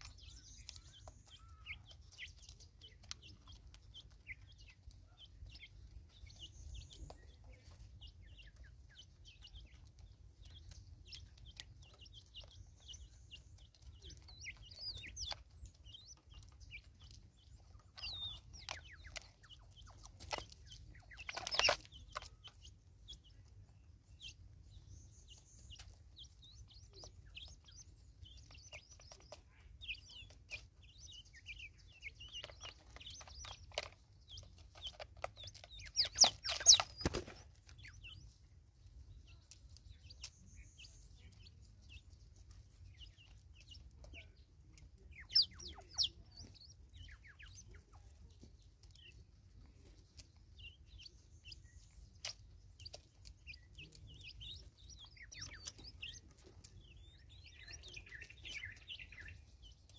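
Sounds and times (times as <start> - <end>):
small birds chirping: 0.0 - 59.9
spurfowl clucking: 34.8 - 38.2, 45.0 - 48.1.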